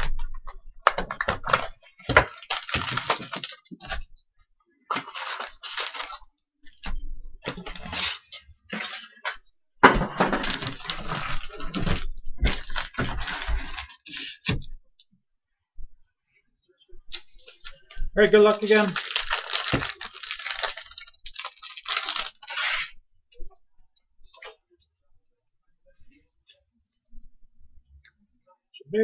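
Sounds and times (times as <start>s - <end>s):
wrappers crinkling and tearing: 0.9s - 4.1s, 4.9s - 6.3s, 7.5s - 9.4s, 10.3s - 14.5s, 17.1s - 22.9s.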